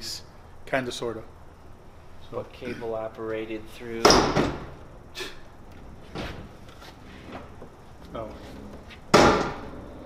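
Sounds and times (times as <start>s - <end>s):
car liftgate slamming shut: 9.1s - 9.7s.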